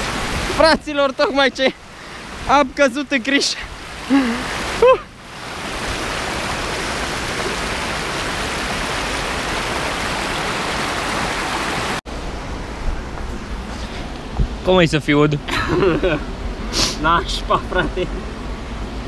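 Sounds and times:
river water rushing over weir: 0.0 - 14.4
person's voice: 0.5 - 1.8, 2.4 - 5.1.

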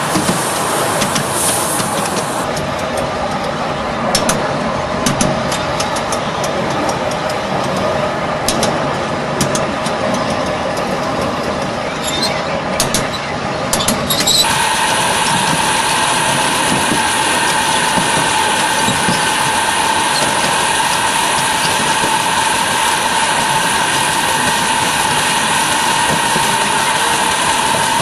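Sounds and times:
miniature steam locomotive running: 0.0 - 28.0
wheels clicking on rails: 0.0 - 28.0.

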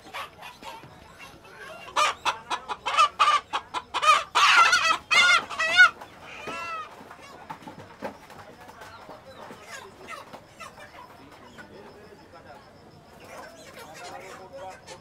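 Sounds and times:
chicken squawking: 0.0 - 7.0.

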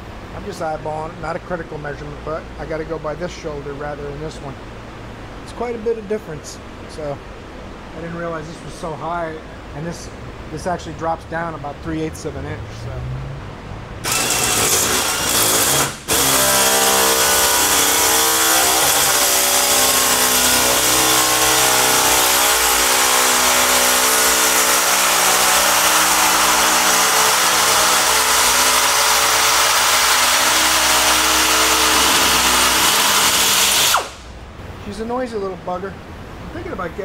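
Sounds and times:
air nibbler cutting sheet steel: 14.0 - 34.3.

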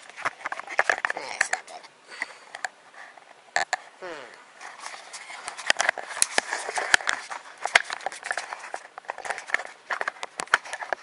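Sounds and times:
camera handling rustling and clicks: 0.0 - 3.8, 4.6 - 11.0.

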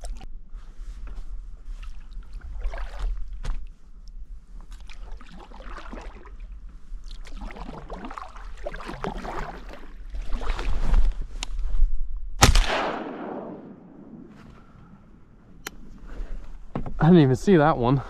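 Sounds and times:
paddle strokes splashing in water: 1.6 - 3.8, 4.6 - 11.3
shotgun shot with echo: 12.4 - 14.3.

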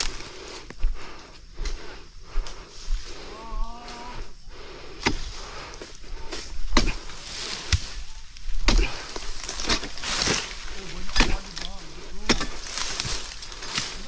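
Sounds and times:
chisel knocking on palm fronds: 9.5 - 12.7.

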